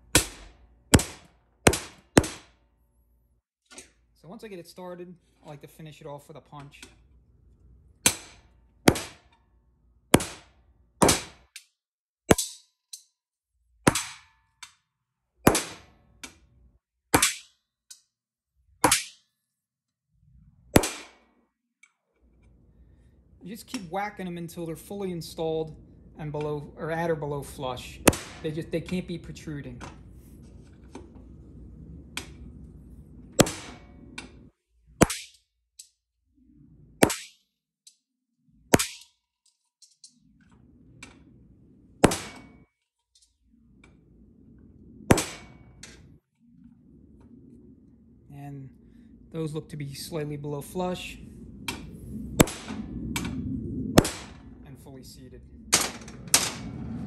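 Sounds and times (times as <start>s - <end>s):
hammer striking steel punch: 0.1s - 2.6s, 8.0s - 9.3s, 10.1s - 11.6s, 12.3s - 13.0s, 13.8s - 14.4s, 15.4s - 16.0s, 17.1s - 17.6s, 18.8s - 19.2s, 20.8s - 21.2s, 28.0s - 28.5s, 33.4s - 34.0s, 35.0s - 35.4s, 38.7s - 39.1s, 42.0s - 42.6s, 45.1s - 45.7s.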